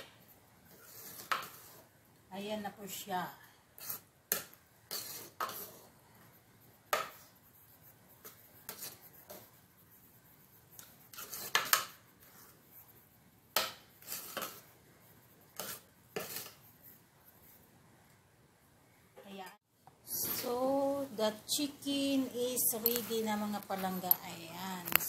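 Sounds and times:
metal spoon scraping a pot: 4.9 - 5.8, 15.6 - 16.6.

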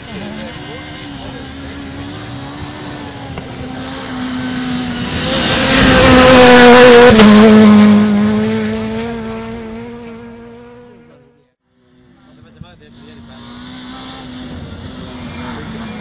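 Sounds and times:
rally car engine at high revs: 0.0 - 16.0
tyres rushing on gravel: 3.4 - 10.0.

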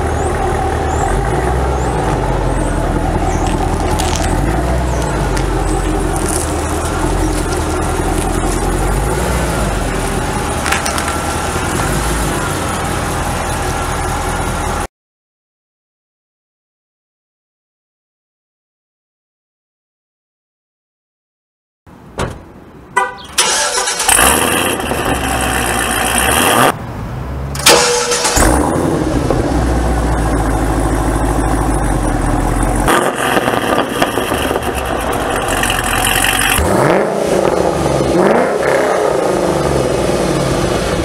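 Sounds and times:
car engine revving: 0.0 - 14.8, 23.4 - 26.8, 27.6 - 41.0
car engine idling: 0.0 - 14.9, 23.0 - 26.6, 27.6 - 41.0.

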